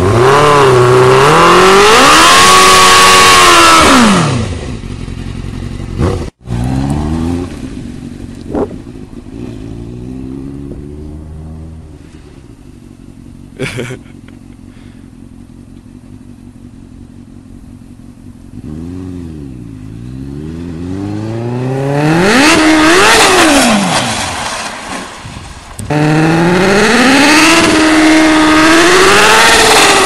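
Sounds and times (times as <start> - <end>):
loud engine revving: 0.0 - 4.8, 6.0 - 7.8, 18.6 - 24.4, 25.8 - 30.0
motorcycle engine revving: 0.0 - 24.4, 25.3 - 30.0.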